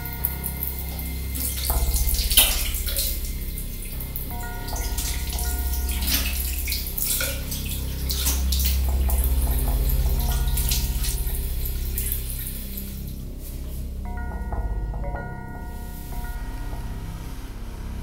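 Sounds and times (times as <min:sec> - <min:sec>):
low steady drone: 0:00.0 - 0:18.0
tap water splashing into basin: 0:04.7 - 0:11.3.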